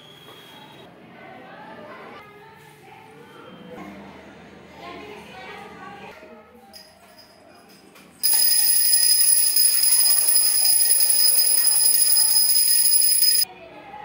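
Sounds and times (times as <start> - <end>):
bell ringing: 8.2 - 13.5.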